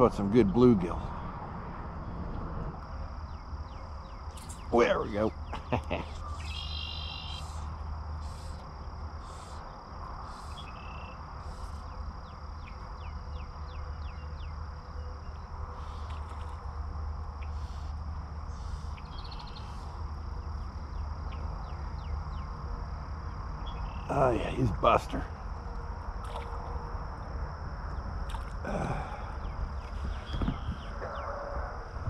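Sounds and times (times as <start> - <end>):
low rumble: 0.0 - 6.5
insects droning: 0.0 - 32.0.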